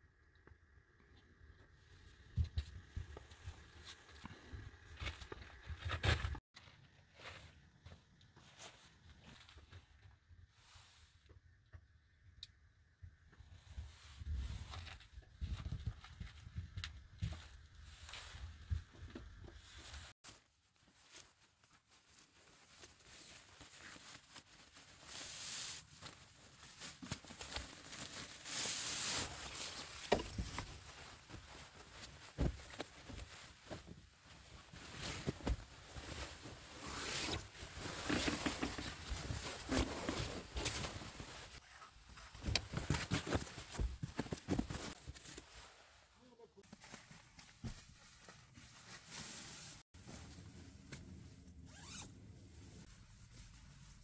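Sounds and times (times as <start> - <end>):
fabric rustling and swishing: 19.6 - 46.1.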